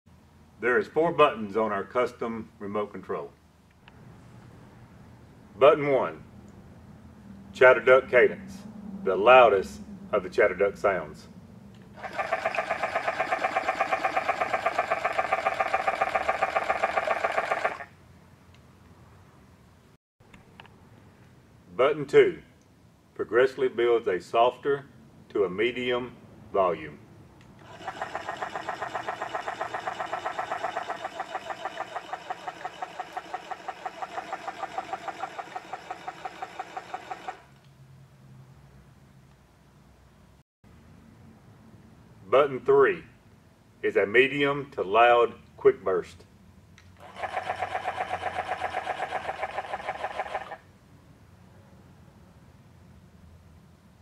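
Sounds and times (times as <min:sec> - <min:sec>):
duck decoy mechanical chattering: 0:12.0 - 0:17.9, 0:27.6 - 0:37.6, 0:47.0 - 0:50.6.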